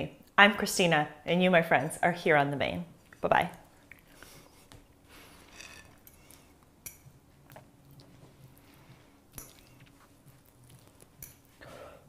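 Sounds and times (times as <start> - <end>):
quiet chewing: 3.0 - 5.5, 7.3 - 12.0.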